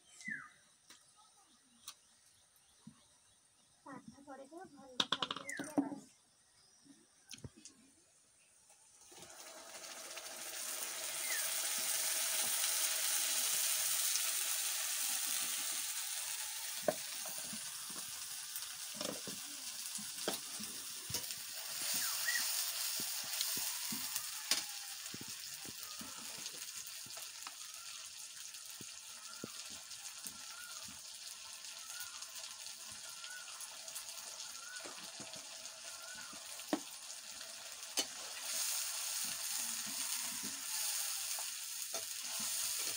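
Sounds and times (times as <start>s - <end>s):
paste sizzling in hot oil: 8.6s - 42.9s.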